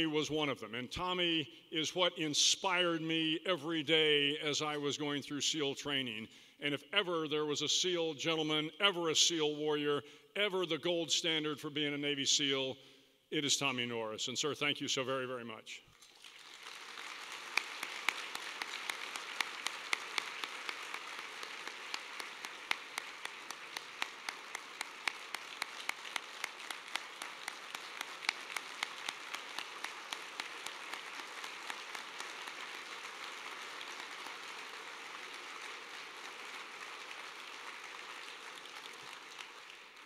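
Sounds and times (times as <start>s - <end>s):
audience applauding: 16.1s - 40.0s.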